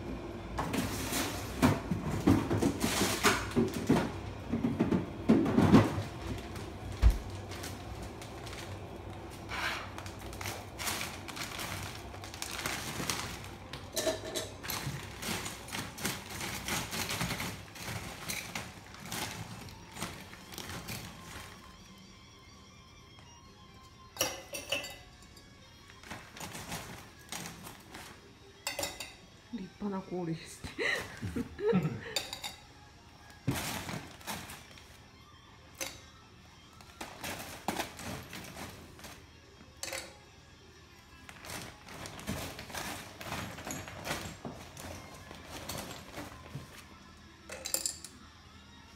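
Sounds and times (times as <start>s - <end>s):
quiet background music: 0.0s - 48.9s
ice cubes clinking in plastic bag: 0.7s - 21.9s, 25.9s - 29.1s, 33.4s - 35.0s, 36.7s - 40.2s, 41.2s - 48.2s.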